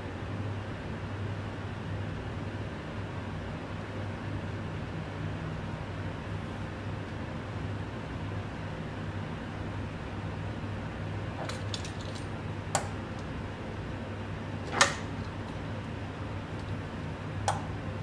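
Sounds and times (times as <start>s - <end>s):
steady low hum: 9.6s - 18.0s
metallic clicks and knocks: 11.4s - 13.3s, 14.7s - 15.7s.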